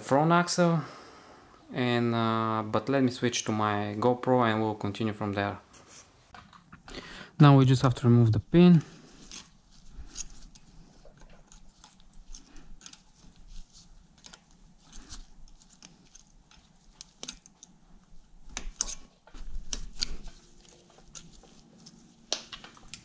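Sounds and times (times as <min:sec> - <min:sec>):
pliers clicking and scraping metal: 0:09.2 - 0:23.0.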